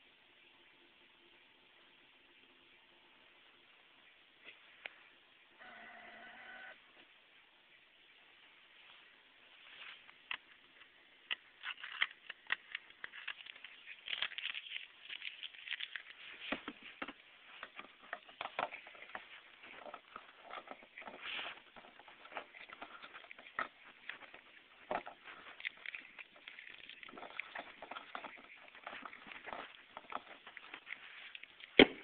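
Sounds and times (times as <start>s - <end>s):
handling noise clicks and rustles: 9.6s - 32.0s.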